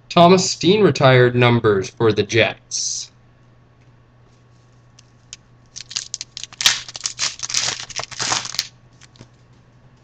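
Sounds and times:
foil wrapper tearing and crinkling: 5.8 - 9.2.

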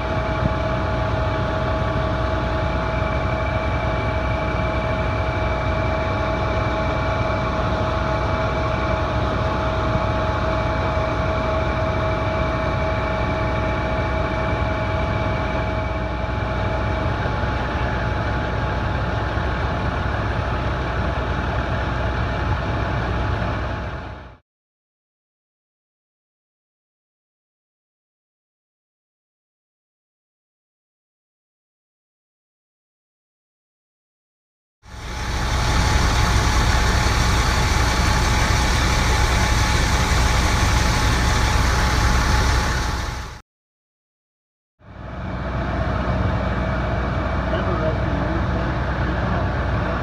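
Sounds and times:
diesel engine running: 0.0 - 24.4, 34.9 - 43.4, 44.9 - 50.0
faint steady whine: 34.9 - 43.4.

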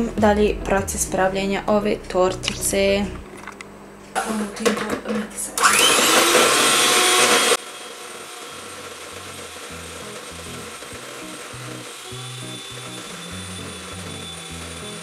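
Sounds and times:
quiet background music: 0.0 - 5.5
electric hand mixer running: 5.6 - 15.0.

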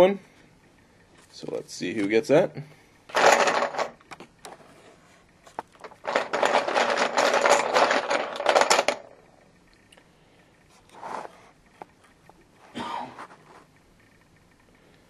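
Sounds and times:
plastic chips clattering: 3.1 - 4.2, 5.6 - 9.2.

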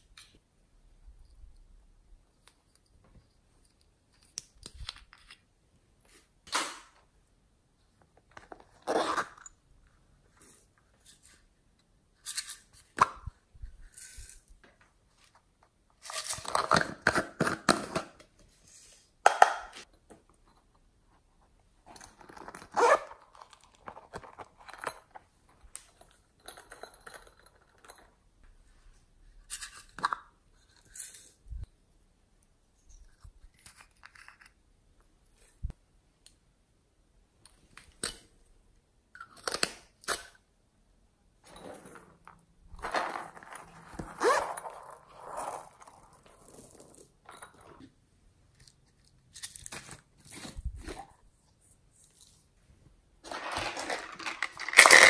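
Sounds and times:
plastic toys rustling and tapping: 53.2 - 55.0.

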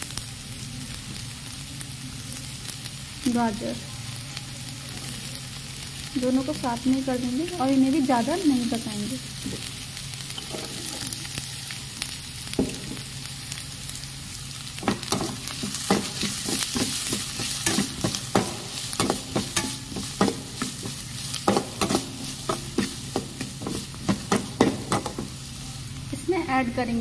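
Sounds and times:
vegetables sizzling in hot oil: 0.0 - 27.0
metal spatula scraping a pan: 14.8 - 25.3.

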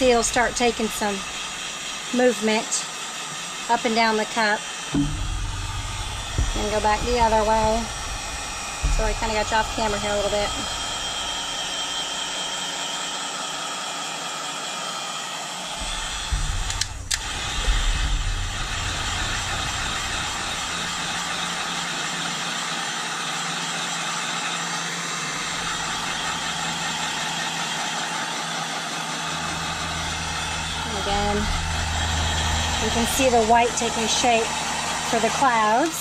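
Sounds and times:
low thumps: 0.0 - 2.1, 4.9 - 12.4, 15.8 - 21.9, 25.4 - 27.4, 29.2 - 35.4
heat gun fan blowing: 0.0 - 36.0.

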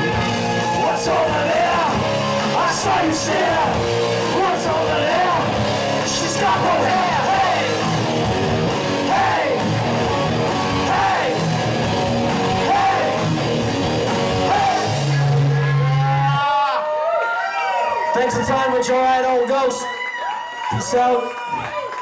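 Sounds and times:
live rock band playing: 0.0 - 16.4
men singing and yelling: 0.0 - 16.4.

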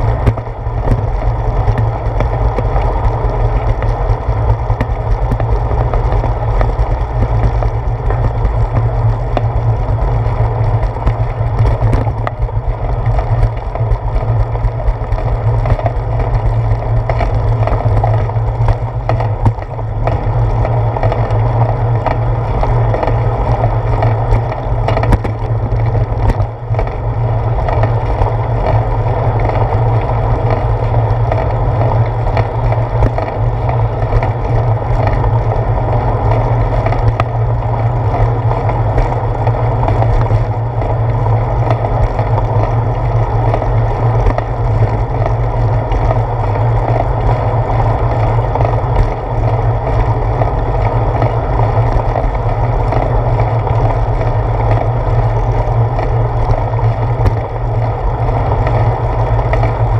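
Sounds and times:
bicycle rolling on concrete: 0.0 - 59.9
wheels clicking over pavement joints: 0.0 - 59.9.

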